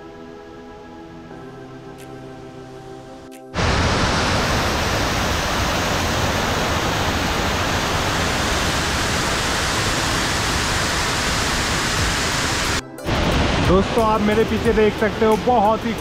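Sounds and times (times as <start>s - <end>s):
waterfall rushing: 3.5s - 16.0s.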